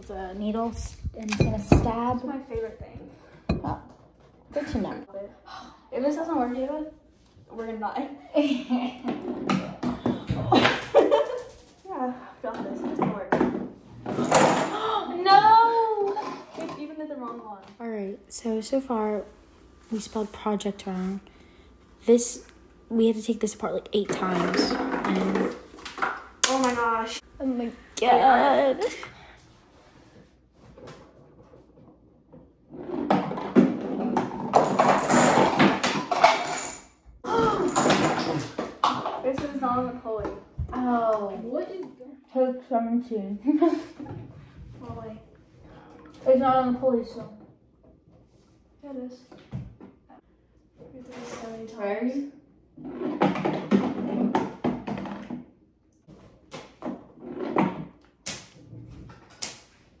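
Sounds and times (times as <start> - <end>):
parts rolling and falling: 24.0 - 26.8, 30.7 - 39.6
wooden parts clattering and knocking: 31.2 - 36.9.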